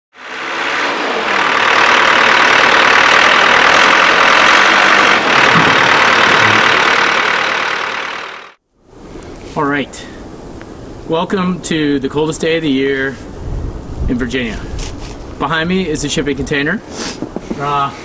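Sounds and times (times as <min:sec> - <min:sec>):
diesel engine running: 0:00.1 - 0:08.6.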